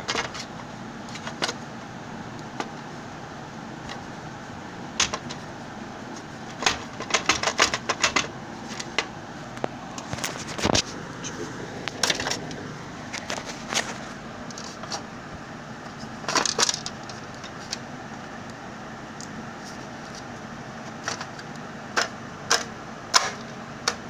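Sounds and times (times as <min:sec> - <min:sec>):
plastic parts clicking and knocking: 0:00.0 - 0:00.5, 0:01.1 - 0:01.6, 0:05.0 - 0:05.4, 0:06.5 - 0:10.8, 0:16.3 - 0:17.8, 0:20.9 - 0:24.0
steady low hiss: 0:00.0 - 0:24.0.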